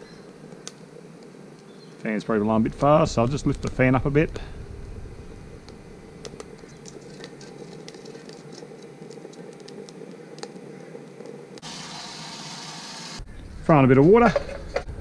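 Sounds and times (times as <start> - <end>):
twigs crackling in a fire: 0.0 - 11.8
small fan humming: 0.0 - 13.3.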